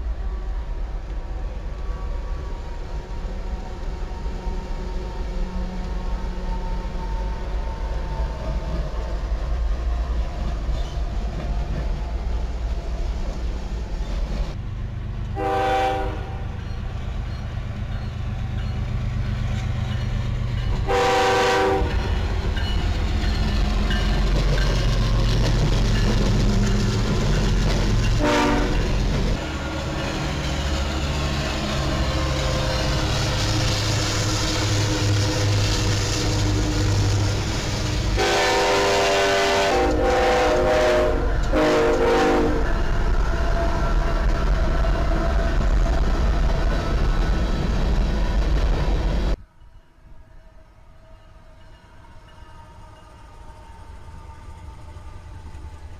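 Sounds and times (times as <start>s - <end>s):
train rumble: 0.0s - 55.9s
locomotive horn blasts: 15.4s - 16.5s, 20.8s - 22.1s, 28.2s - 29.0s, 38.2s - 42.7s.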